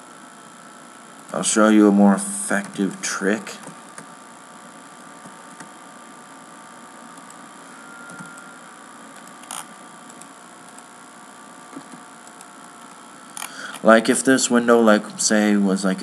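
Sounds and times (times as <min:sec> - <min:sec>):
background hiss and hum: 0:00.0 - 0:16.0.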